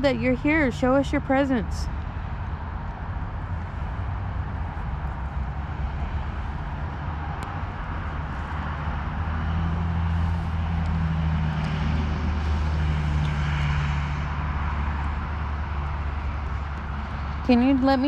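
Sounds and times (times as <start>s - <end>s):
distant engine droning: 0.0s - 18.0s.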